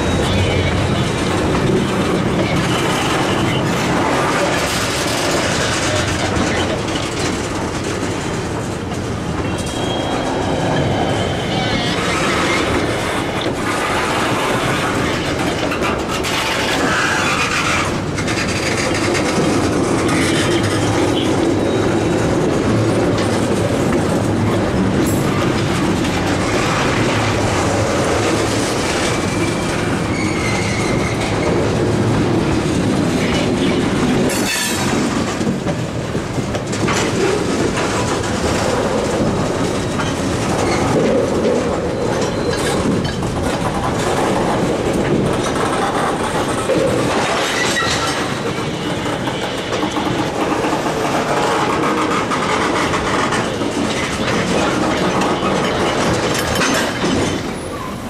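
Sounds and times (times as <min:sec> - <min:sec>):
wheel squeals: 0:00.0 - 0:07.1, 0:09.4 - 0:23.4, 0:26.3 - 0:31.8, 0:39.9 - 0:43.6
train wheels clattering over rails: 0:00.0 - 0:58.0.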